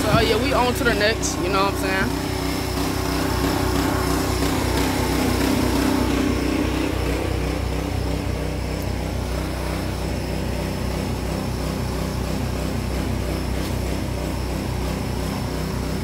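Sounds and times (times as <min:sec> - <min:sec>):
small engine running: 0:00.0 - 0:16.0.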